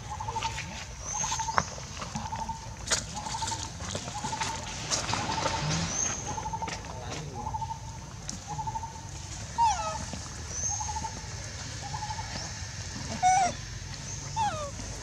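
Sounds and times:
harsh animal call: 0:13.0 - 0:13.6, 0:14.2 - 0:14.8
short warbling animal calls: 0:13.1 - 0:13.6, 0:14.3 - 0:14.8.

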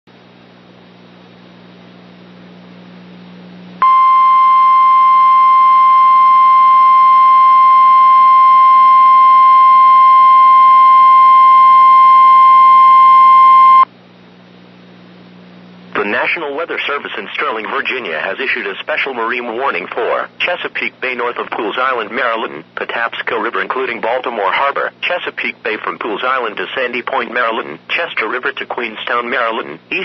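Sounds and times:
faint low hum: 0:00.1 - 0:30.0
steady alarm tone: 0:03.8 - 0:13.9.

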